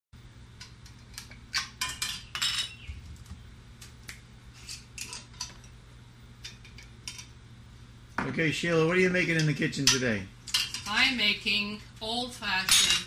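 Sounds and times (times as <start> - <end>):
glass jars and utensils clinking: 1.7 - 2.8, 12.7 - 13.0.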